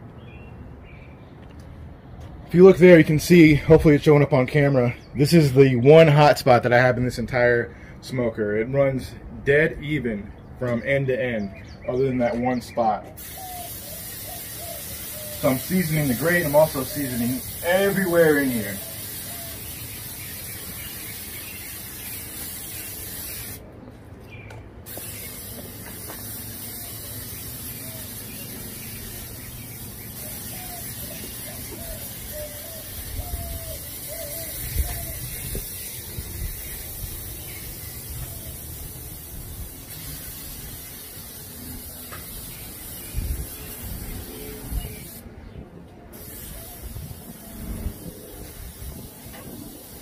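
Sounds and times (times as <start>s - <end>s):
aerosol can spraying: 13.2s - 23.6s, 24.9s - 45.2s, 46.2s - 50.0s.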